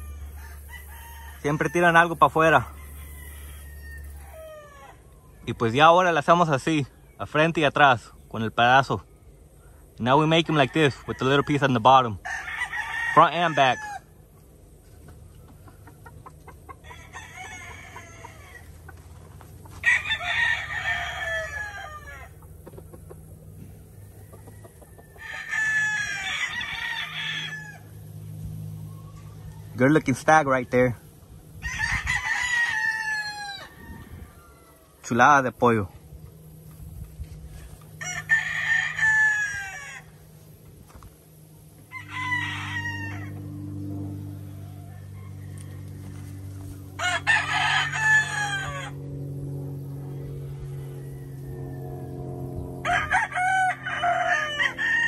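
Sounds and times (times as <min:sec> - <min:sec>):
roosters crowing: 0:00.0 - 0:55.0
low steady hum: 0:14.0 - 0:55.0.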